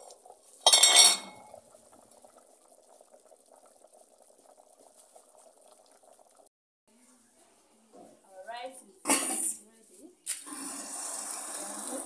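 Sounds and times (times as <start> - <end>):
sauce bubbling in a pot: 0.0 - 6.5, 10.4 - 12.0
metal pot lid clanking: 0.6 - 1.6.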